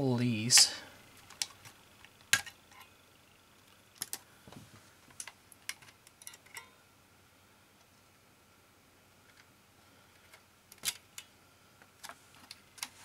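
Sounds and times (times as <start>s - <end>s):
plastic and metal parts clicking: 10.2s - 11.3s.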